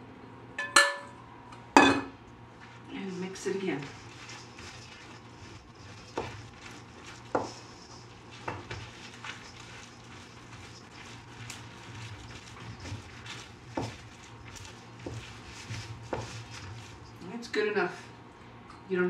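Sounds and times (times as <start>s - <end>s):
hands kneading dough: 2.4s - 18.0s.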